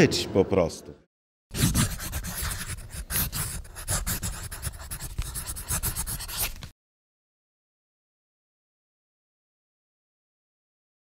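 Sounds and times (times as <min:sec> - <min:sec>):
pen scratching on paper: 0:01.5 - 0:06.7.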